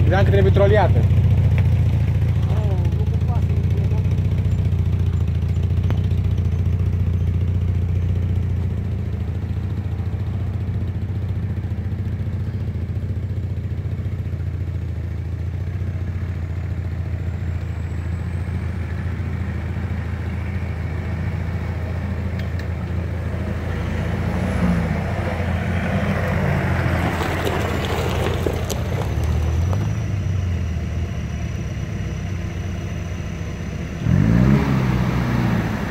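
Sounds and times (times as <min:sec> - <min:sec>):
gravel crunching under tyres: 0:00.0 - 0:35.9
suv engine idling and revving: 0:00.0 - 0:35.9
second engine revving loudly: 0:33.9 - 0:35.9.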